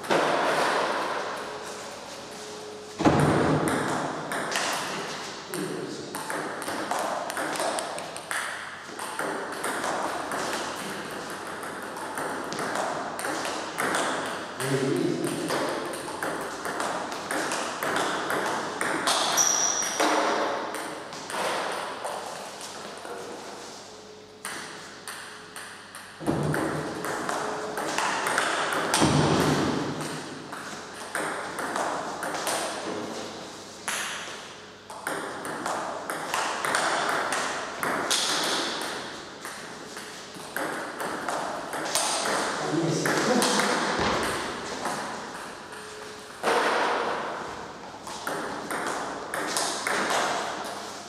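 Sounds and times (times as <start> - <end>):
ping pong ball clicking off bats: 3.5 - 22.3, 24.4 - 33.0, 34.9 - 47.2, 48.0 - 50.8
ball bouncing on table: 24.4 - 33.0, 34.9 - 45.8.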